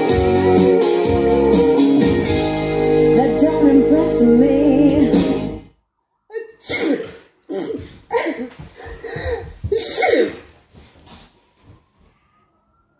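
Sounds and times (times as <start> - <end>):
person sneezing and coughing: 6.4 - 10.6.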